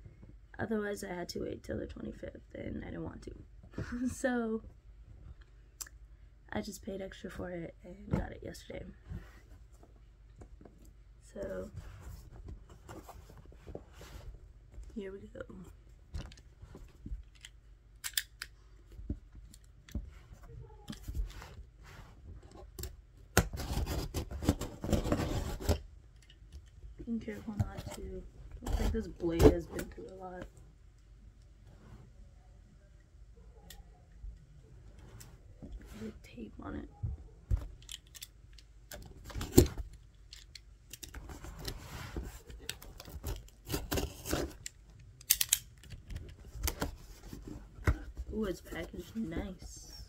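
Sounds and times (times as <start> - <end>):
cardboard and wrapping rustling: 9.0 - 17.3, 23.4 - 25.8, 27.0 - 30.4, 41.0 - 45.0, 46.0 - 50.0.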